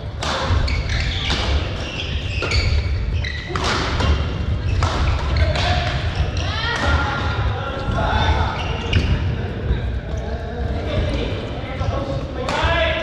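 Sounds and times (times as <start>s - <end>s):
sneakers squeaking on court floor: 0.0s - 7.0s, 7.8s - 9.8s
rackets striking shuttlecock: 0.2s - 2.8s, 3.4s - 7.0s.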